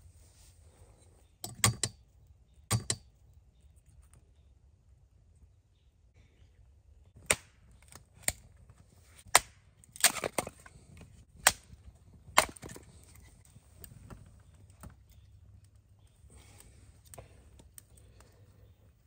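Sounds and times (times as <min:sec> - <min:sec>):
hatchet chopping wood: 0:01.5 - 0:02.0, 0:02.7 - 0:03.0, 0:09.3 - 0:10.5, 0:11.4 - 0:11.7, 0:12.3 - 0:12.8.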